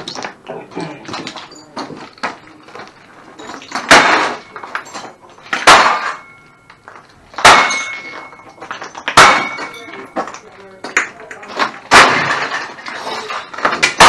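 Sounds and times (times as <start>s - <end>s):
tool smashing electronics: 11.6s - 14.0s.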